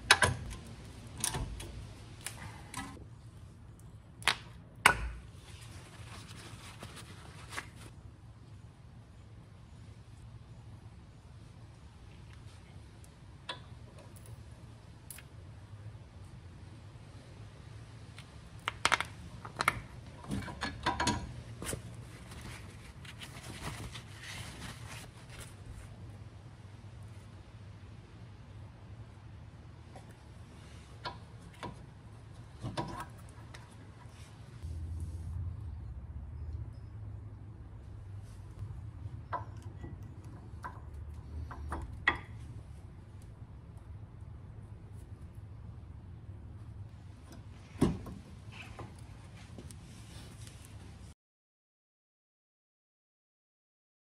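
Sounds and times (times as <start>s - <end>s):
steady low hum: 0.0s - 51.1s
paper towel rustling: 5.4s - 7.9s, 21.6s - 25.9s.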